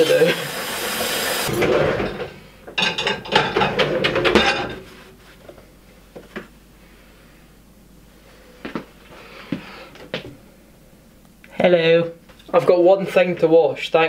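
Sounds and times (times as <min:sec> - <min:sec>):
dishes and cutlery clattering: 0:01.5 - 0:04.9.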